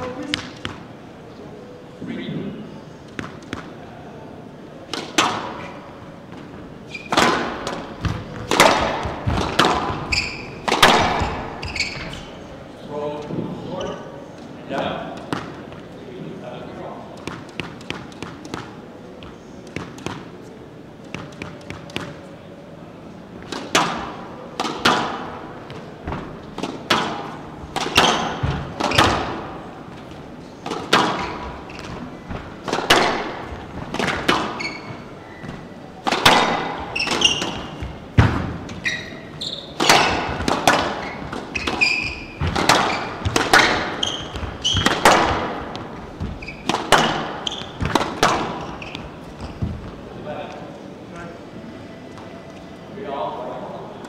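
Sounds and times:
shoes squeaking on wooden floor: 5.6 - 12.5, 27.6 - 50.2
squash ball cracking off walls: 7.0 - 12.1, 23.5 - 29.6, 30.6 - 35.0, 36.0 - 39.0, 39.8 - 49.0.

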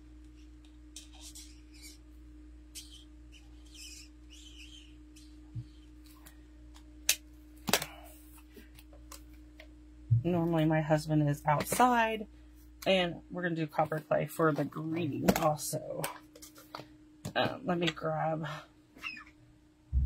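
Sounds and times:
steady low hum: 0.0 - 20.0
marker scratching on card: 0.6 - 2.0, 2.7 - 5.8.

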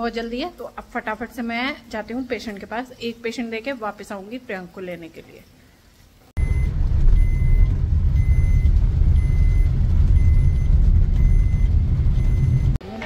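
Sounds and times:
car engine and tyre rumble: 6.4 - 12.8.

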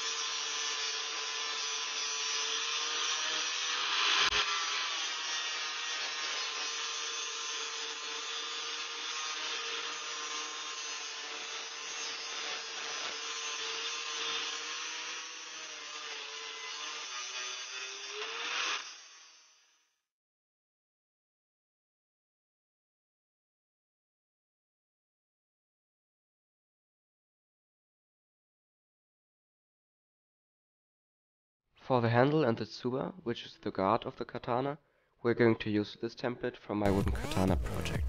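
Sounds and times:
angle grinder grinding steel: 0.0 - 19.9, 36.9 - 38.0.

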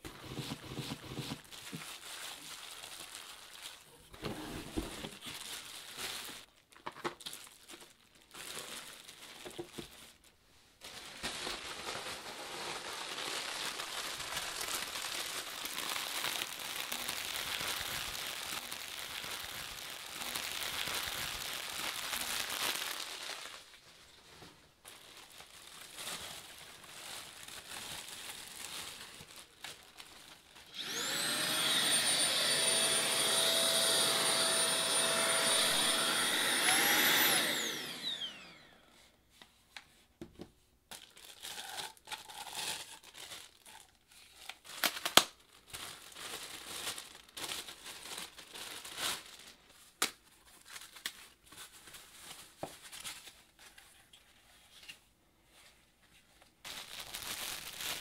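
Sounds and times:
plastic wrapping crinkling: 0.4 - 38.6, 40.9 - 58.0
vacuum motor whine: 30.7 - 38.9.

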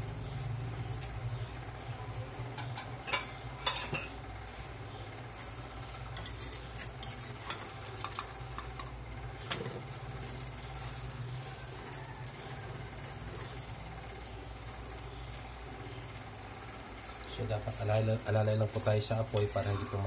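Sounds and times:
steady low hum: 0.0 - 20.0
metal spatula scraping a pan: 6.1 - 8.3, 19.0 - 20.0.

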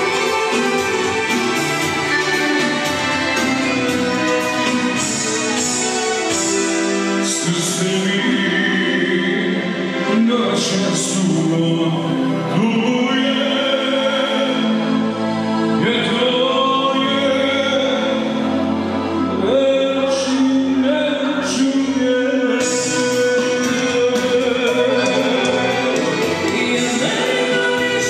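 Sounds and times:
accordion: 0.0 - 28.0
band accompaniment: 0.0 - 28.0
man singing through microphone: 7.1 - 28.0.

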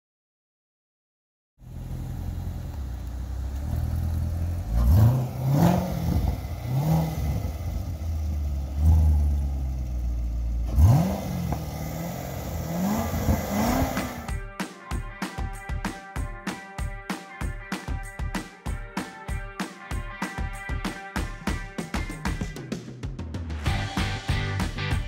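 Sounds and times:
car engine idling and revving: 1.6 - 14.4.

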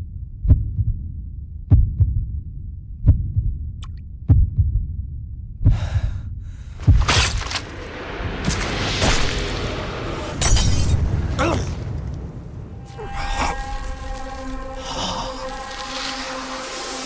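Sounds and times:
heavy heartbeat thumps: 0.0 - 7.3
rushing hissing swell: 7.7 - 17.0.

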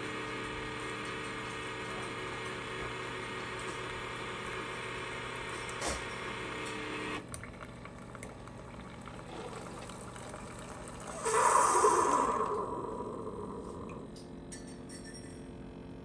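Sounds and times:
coffee maker pump running: 0.0 - 14.2
coffee streaming into mug: 5.3 - 14.0.

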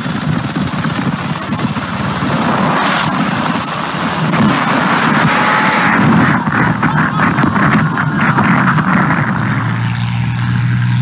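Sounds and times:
rush of wind and spray: 0.0 - 10.3
helicopter rotor chop: 0.0 - 11.0.

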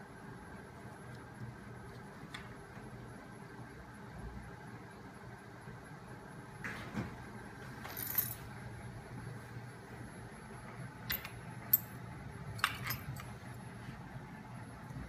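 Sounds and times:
metallic clinks: 12.6 - 13.3.

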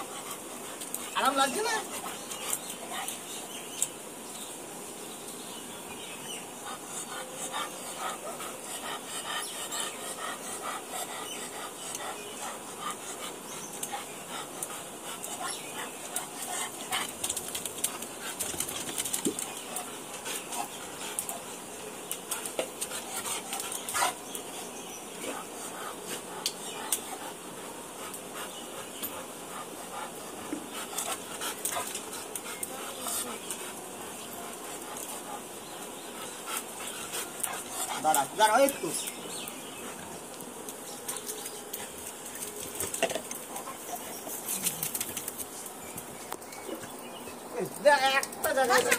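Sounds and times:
dog panting: 0.0 - 3.3, 6.6 - 40.4.

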